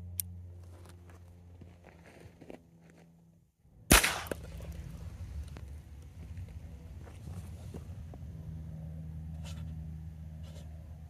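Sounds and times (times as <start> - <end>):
revolver gunshot: 3.9 - 4.6.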